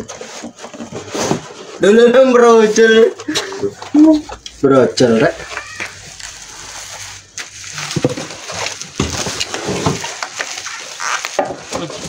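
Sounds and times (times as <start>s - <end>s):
cardboard scraping: 0.0s - 3.2s, 5.0s - 12.0s
bubble wrap crinkling: 3.9s - 12.0s.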